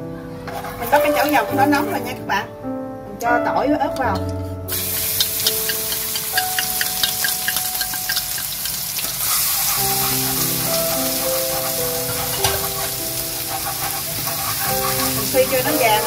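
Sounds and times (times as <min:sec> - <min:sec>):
wooden spatula stirring: 0:00.5 - 0:02.1, 0:09.2 - 0:16.0
garlic sizzling in hot oil: 0:04.7 - 0:16.0.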